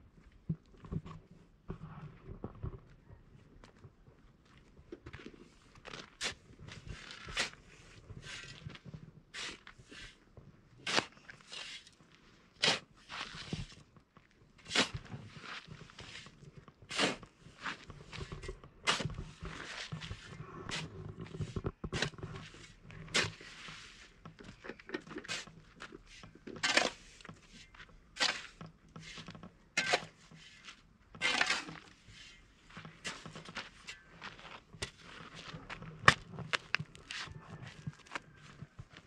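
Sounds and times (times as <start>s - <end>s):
scrapes of hard objects: 14.6s - 38.6s.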